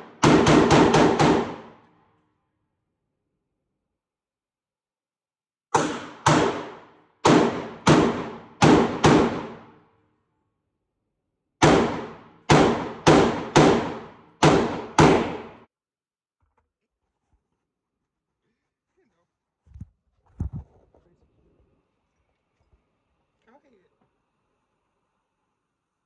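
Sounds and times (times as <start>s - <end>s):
gunshots: 0.0s - 1.8s, 5.7s - 9.8s, 11.6s - 15.7s.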